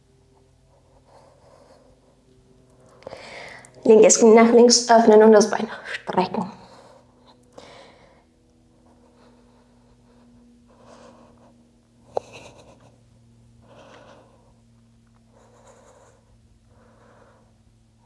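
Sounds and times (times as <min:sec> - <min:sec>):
faint low hum: 0:00.0 - 0:18.0
woman breathing under exertion: 0:02.9 - 0:03.8, 0:06.6 - 0:08.3.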